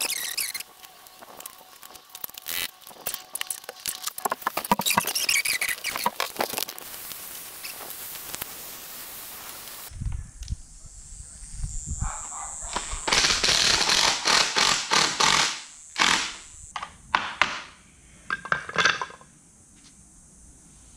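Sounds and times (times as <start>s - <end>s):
metal threshold clattering on concrete: 18.3s - 19.2s.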